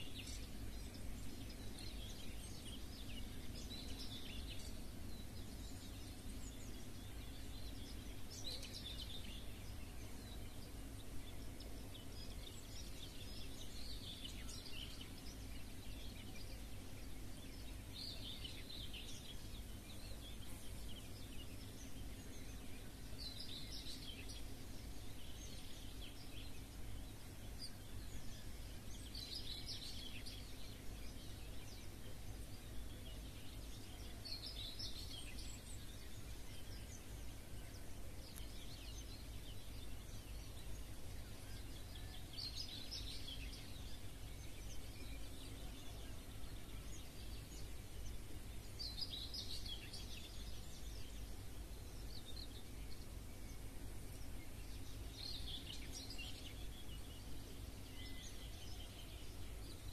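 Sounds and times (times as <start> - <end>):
birdsong: 0.0 - 59.9
steady low hum: 0.0 - 59.9.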